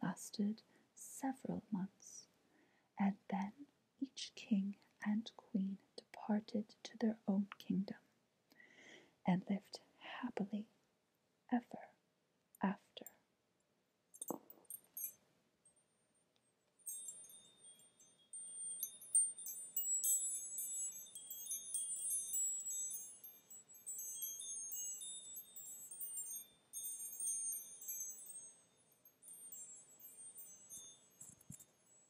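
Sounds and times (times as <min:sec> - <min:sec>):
wind chimes tinkling: 0:14.2 - 0:15.2, 0:16.8 - 0:32.0.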